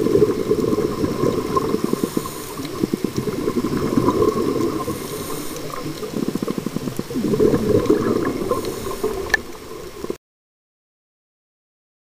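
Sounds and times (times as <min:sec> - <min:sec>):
underwater bubbles burbling: 0:00.0 - 0:10.2.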